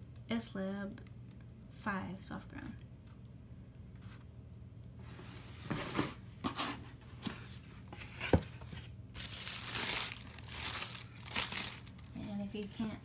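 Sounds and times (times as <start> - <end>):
cardboard box scrapes and knocks: 5.1 - 8.6
tissue paper rustling: 9.1 - 12.1.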